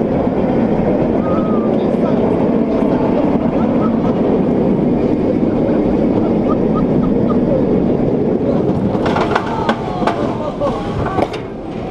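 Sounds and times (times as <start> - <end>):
roller coaster rumbling on track: 0.0 - 11.9
wind over microphone: 0.0 - 11.9
metal clanks: 8.6 - 11.5.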